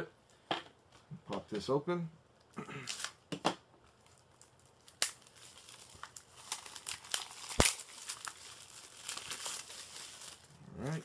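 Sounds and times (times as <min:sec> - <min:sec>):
plastic shrink wrap crinkling: 0:03.8 - 0:11.0.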